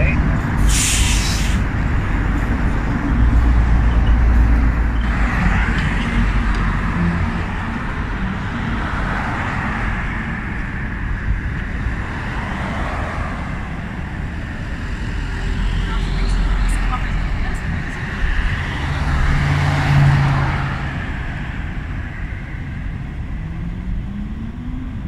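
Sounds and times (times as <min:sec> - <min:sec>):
vehicle road noise rumble: 0:00.0 - 0:25.0
engine and tyre hiss: 0:00.6 - 0:01.8.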